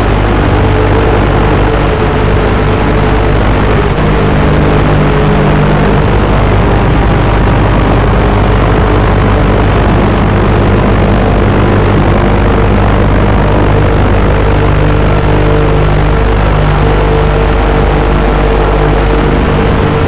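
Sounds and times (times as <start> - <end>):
quadcopter propellers droning: 0.0 - 20.0.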